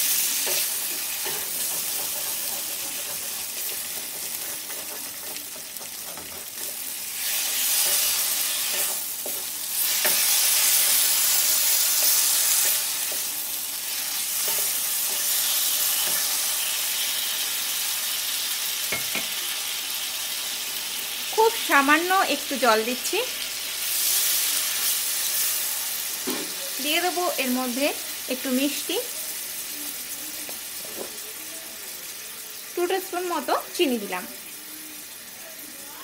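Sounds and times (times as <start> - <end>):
vegetables sizzling in a pan: 0.0 - 36.0
wooden spatula stirring: 0.4 - 13.3
spatula knocking against pan: 0.9 - 6.8.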